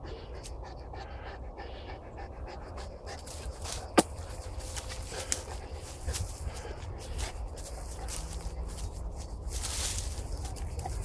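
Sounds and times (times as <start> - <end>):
dogs panting: 0.0 - 11.0
leaf litter crackling underfoot: 3.3 - 11.0.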